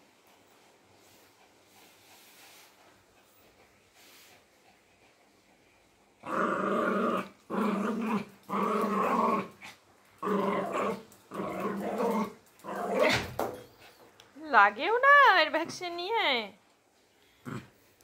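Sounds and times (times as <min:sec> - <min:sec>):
small dog growling: 0:06.2 - 0:13.3, 0:17.4 - 0:17.9.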